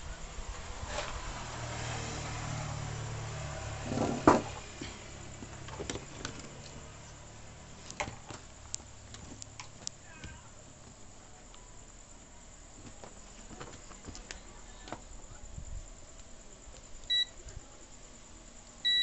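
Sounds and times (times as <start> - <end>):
vehicle engine humming: 0.0 - 10.1.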